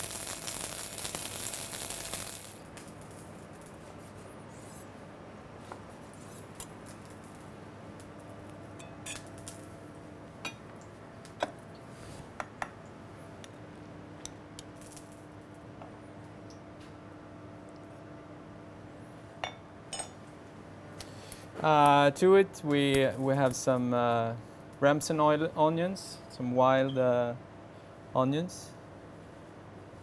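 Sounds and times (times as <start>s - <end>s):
lettuce sizzling in frying pan: 0.0s - 2.7s
faint kitchen hum: 2.6s - 30.0s.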